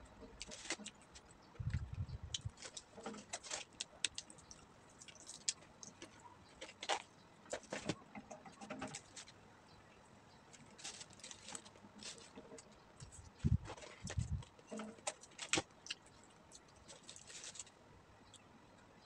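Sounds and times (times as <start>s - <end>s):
fried chicken crackling when torn: 2.4s - 6.0s
paper wrapper rustling: 10.6s - 15.7s, 16.9s - 17.7s.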